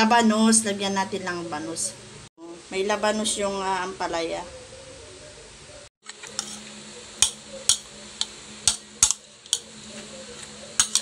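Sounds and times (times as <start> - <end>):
utensil clinking against bowl: 10.8 - 11.0.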